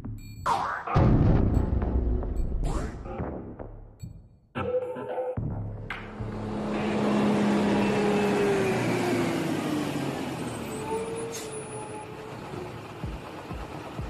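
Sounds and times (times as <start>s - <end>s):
heavy truck engine running: 5.9s - 14.0s.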